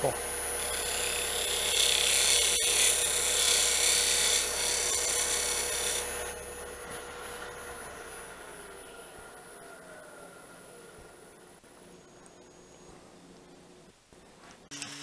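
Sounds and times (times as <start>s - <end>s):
wood lathe humming: 0.0s - 11.4s
lathe gouge scraping wood: 0.1s - 8.5s.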